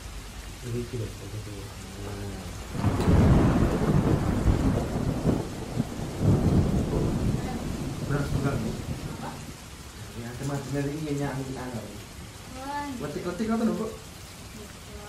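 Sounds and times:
steady rain: 0.0s - 15.0s
rumble of thunder: 2.0s - 12.0s.

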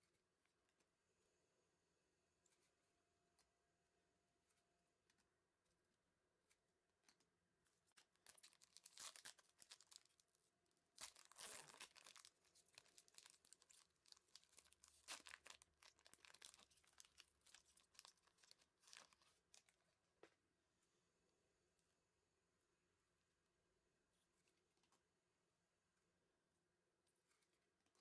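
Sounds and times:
plastic wrapper crinkling: 8.0s - 10.2s, 10.9s - 19.8s
plastic wrapper ripping: 8.0s - 10.2s, 11.0s - 19.7s.

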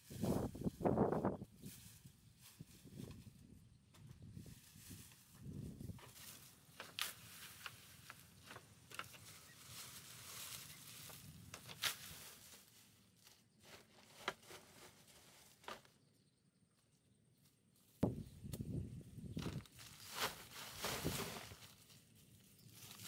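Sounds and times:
leafy branches rustling: 0.0s - 3.6s, 4.3s - 15.9s, 18.0s - 23.0s
branches dropped on bamboo floor: 4.7s - 16.0s, 19.4s - 22.0s.

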